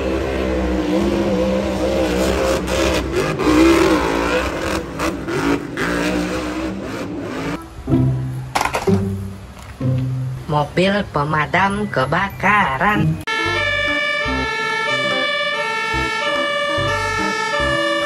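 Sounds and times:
truck engine revving hard: 0:00.0 - 0:07.7, 0:13.4 - 0:18.0
background music: 0:07.3 - 0:18.0.

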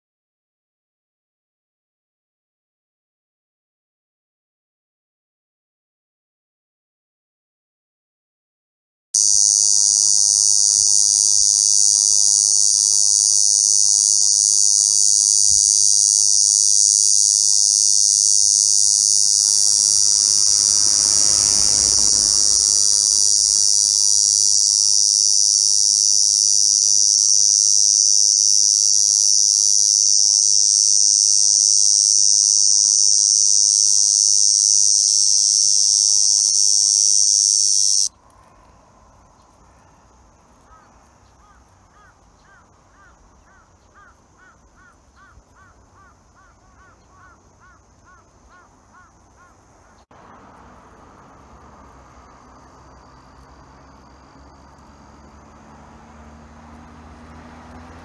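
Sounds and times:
cicada buzzing: 0:09.2 - 0:38.1, 0:40.7 - 0:58.0.

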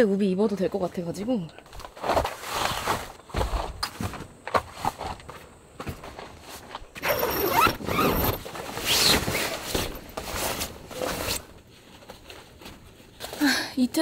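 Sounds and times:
tent door zippers pulled: 0:07.0 - 0:11.4.

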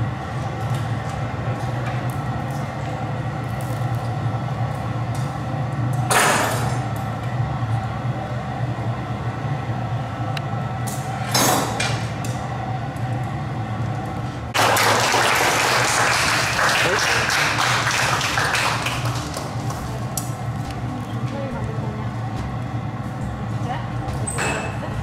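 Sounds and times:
furnace roaring: 0:00.0 - 0:25.0
audience applause: 0:14.5 - 0:20.0.

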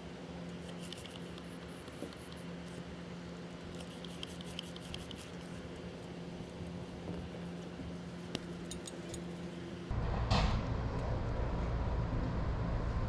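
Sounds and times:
faint steady hum: 0:00.0 - 0:13.0
low rumble: 0:09.9 - 0:13.0.

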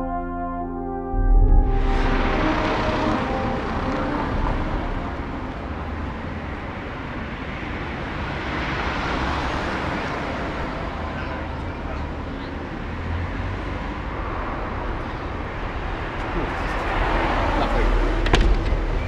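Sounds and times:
brass jingle: 0:00.0 - 0:06.7
road traffic: 0:00.0 - 0:19.0.

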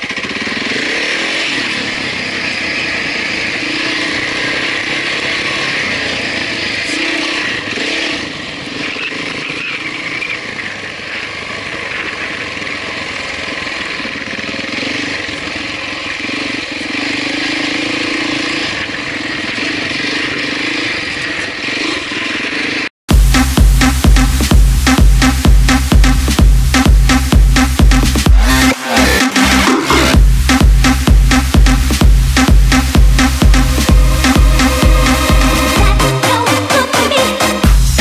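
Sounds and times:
motorcycle engine pulling: 0:00.0 - 0:22.9.

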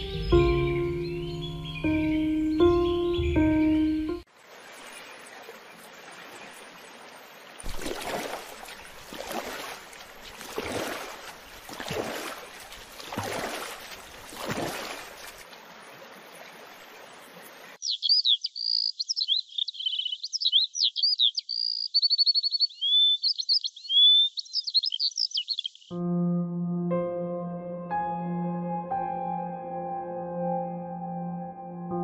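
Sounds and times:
birds chirping: 0:00.0 - 0:25.9
water lapping against boat: 0:04.5 - 0:17.8
oar strokes swishing: 0:07.6 - 0:15.6.

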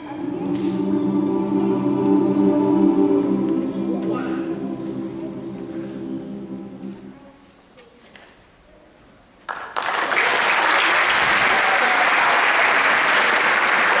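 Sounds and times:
choir chord: 0:00.0 - 0:07.6
audience applause: 0:09.5 - 0:14.0.

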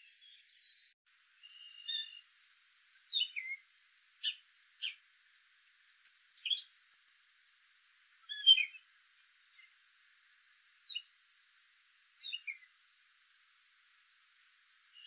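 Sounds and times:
bird song chirps: 0:00.0 - 0:02.3, 0:03.0 - 0:03.6, 0:04.2 - 0:05.0, 0:06.4 - 0:06.8, 0:08.2 - 0:08.9, 0:10.8 - 0:11.1, 0:12.2 - 0:12.7.

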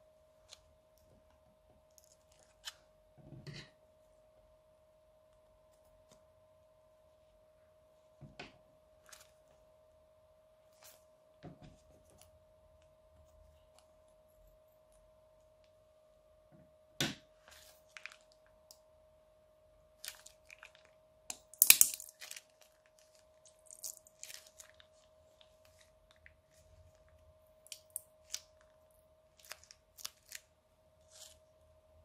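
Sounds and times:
faint steady hum: 0:00.0 - 0:32.0
slime crackling and popping: 0:20.0 - 0:25.0, 0:27.7 - 0:28.6, 0:29.4 - 0:30.5
plastic bag crinkling: 0:21.7 - 0:26.2.

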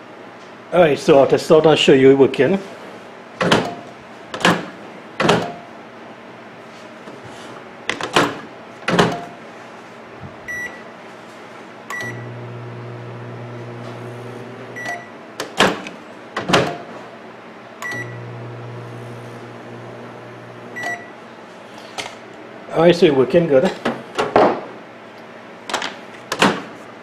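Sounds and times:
microwave oven humming: 0:03.0 - 0:06.9, 0:07.6 - 0:22.7
keypad beeps: 0:10.5 - 0:10.8, 0:11.9 - 0:12.2, 0:14.8 - 0:15.1, 0:17.8 - 0:18.2, 0:20.8 - 0:21.1.

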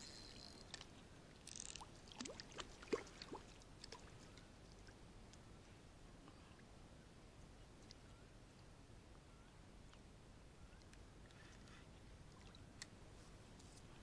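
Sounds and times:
faint water splashes: 0:00.2 - 0:05.0, 0:11.2 - 0:12.9.

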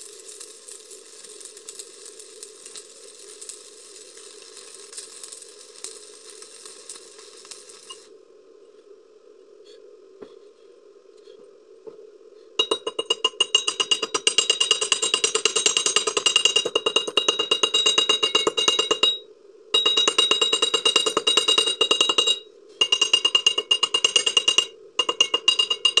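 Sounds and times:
hammer tapping on metal: 0:12.6 - 0:19.2, 0:19.8 - 0:26.0.

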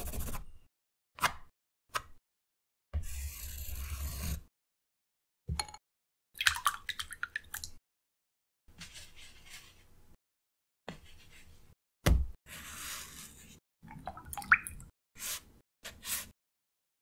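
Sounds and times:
brush swishing on paper: 0:08.8 - 0:09.9.

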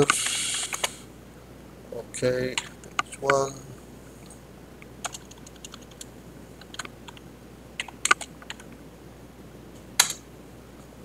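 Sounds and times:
keyboard key clicks: 0:06.6 - 0:07.2, 0:07.8 - 0:08.7, 0:10.0 - 0:10.2.

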